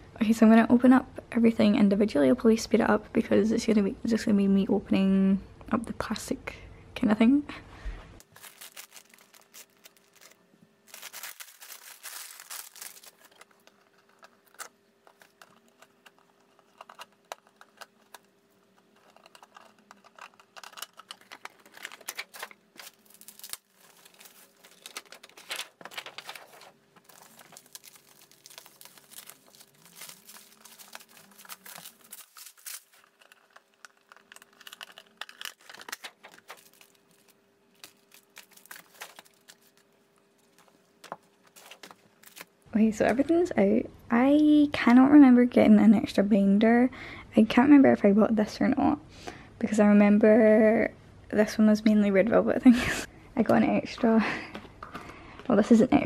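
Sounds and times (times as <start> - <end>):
plastic bags and bubble wrap crinkling: 8.2 - 43.3.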